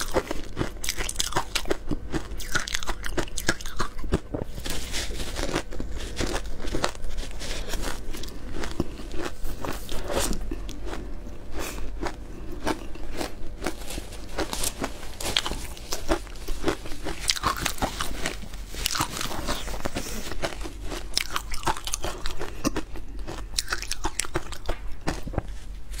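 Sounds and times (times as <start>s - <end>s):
ice being chewed: 0.0s - 26.0s.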